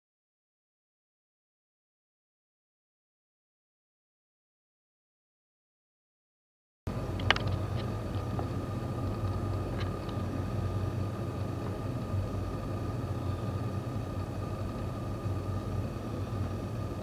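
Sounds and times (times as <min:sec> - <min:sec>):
low room hum: 0:06.9 - 0:17.0.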